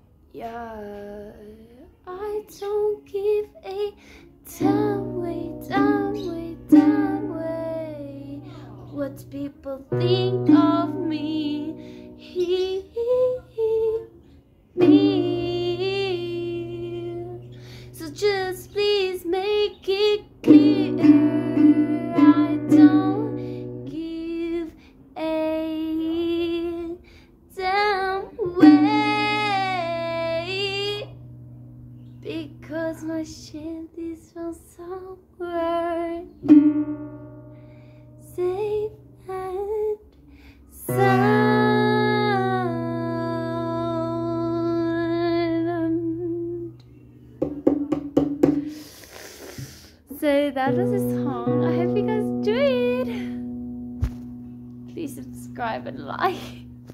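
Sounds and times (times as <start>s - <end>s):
woman singing: 0.3s - 31.2s, 32.2s - 36.6s, 38.2s - 40.1s, 40.7s - 46.8s, 50.1s - 53.6s, 54.9s - 56.8s
strummed acoustic guitar: 50.1s - 56.9s.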